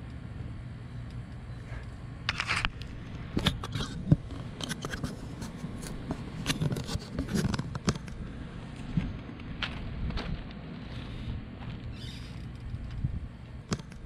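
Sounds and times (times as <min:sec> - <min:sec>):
hardware clicks and scrapes: 0:01.6 - 0:08.2.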